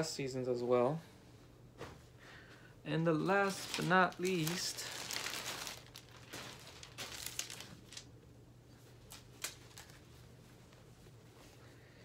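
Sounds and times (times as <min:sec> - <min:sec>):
plastic packaging crinkling: 0:03.2 - 0:08.1, 0:09.0 - 0:10.0.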